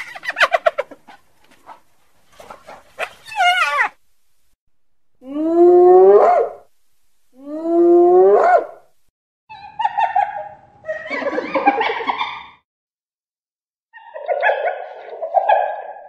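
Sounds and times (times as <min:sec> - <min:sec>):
animal whooping calls: 0:03.2 - 0:04.0.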